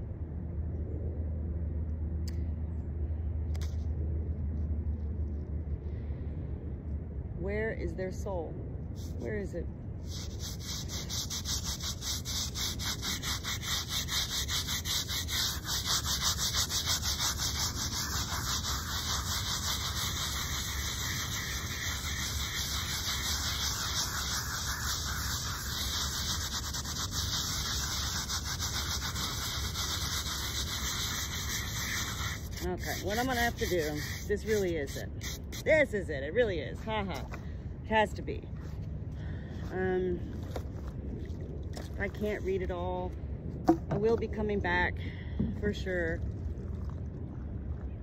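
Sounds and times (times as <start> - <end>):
brush scrubbing stone: 9.0 - 36.0.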